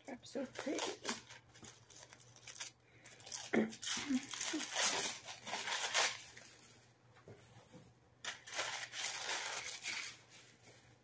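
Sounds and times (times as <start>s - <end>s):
packaging torn and crinkled: 0.5s - 6.6s, 8.2s - 10.3s.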